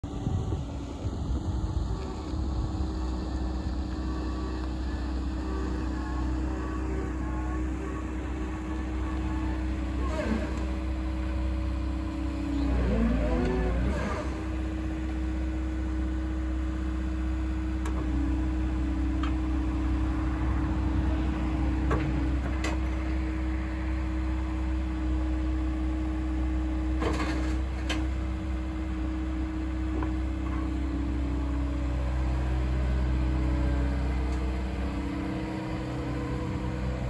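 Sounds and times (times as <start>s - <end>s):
diesel engine idling: 0.0s - 27.0s, 27.6s - 37.0s.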